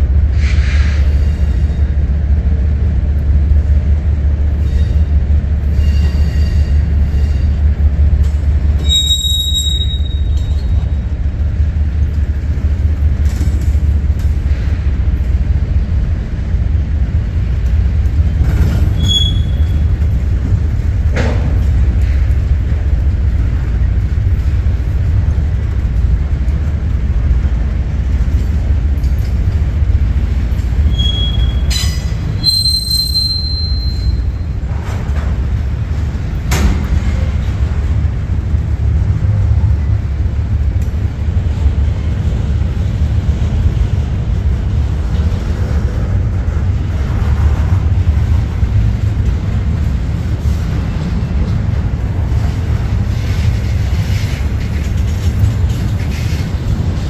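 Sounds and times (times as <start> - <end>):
freight train rumbling on rails: 0.0 - 57.0
high-pitched wheel squeals: 8.8 - 10.8, 18.9 - 19.9, 30.9 - 34.5.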